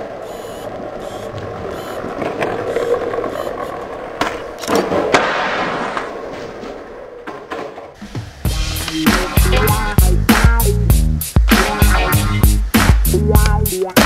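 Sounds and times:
skateboard wheels rolling: 0.0s - 10.5s.

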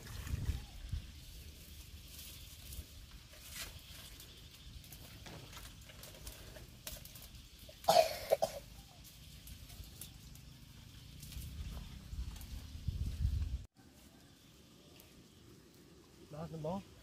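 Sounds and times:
person coughing: 7.9s - 8.7s.

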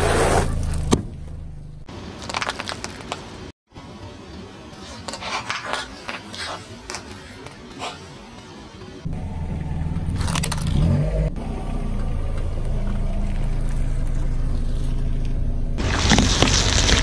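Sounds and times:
car engine low rumble: 0.0s - 2.4s, 9.0s - 17.0s.

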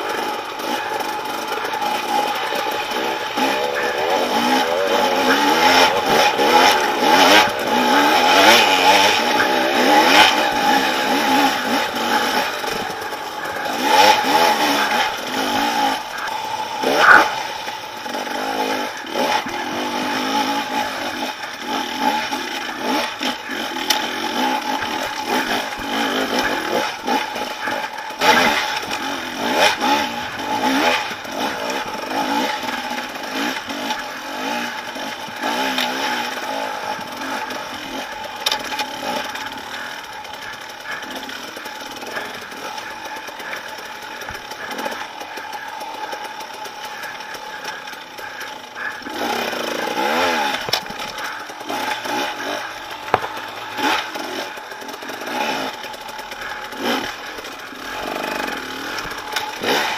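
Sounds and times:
dirt bike engine revving: 0.0s - 59.9s
bike knocking on rocks: 53.0s - 53.6s.

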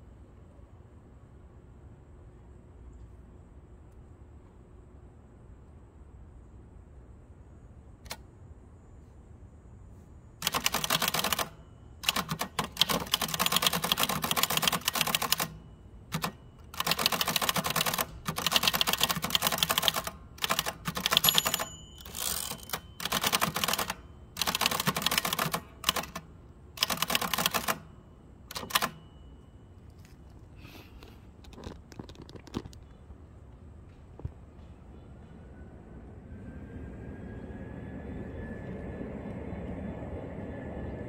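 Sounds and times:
typewriter keystrokes clattering: 10.4s - 27.9s, 28.5s - 29.0s.

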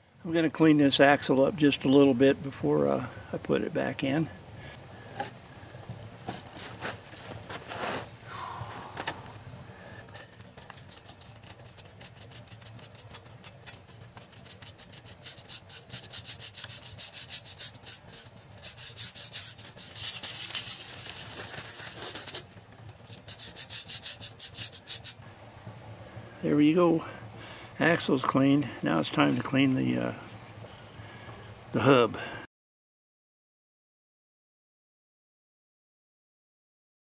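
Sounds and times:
grease scraped off metal shaft: 10.1s - 25.2s.

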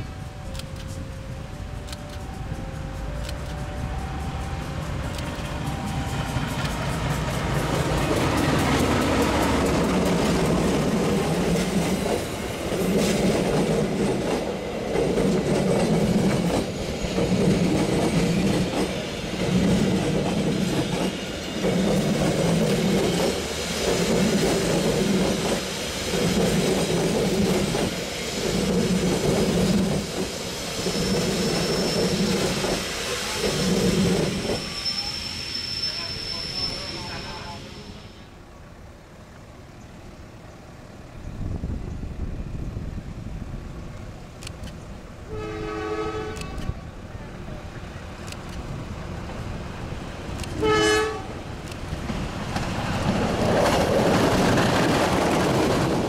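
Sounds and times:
train wheels beating rhythmically: 0.0s - 37.4s, 51.3s - 56.0s
diesel locomotive rumble: 0.0s - 56.0s.

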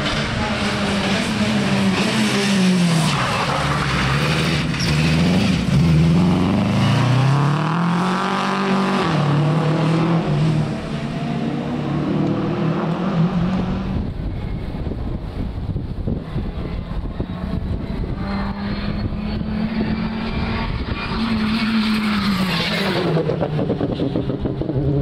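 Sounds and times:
rally car engine revving past: 0.0s - 14.2s.

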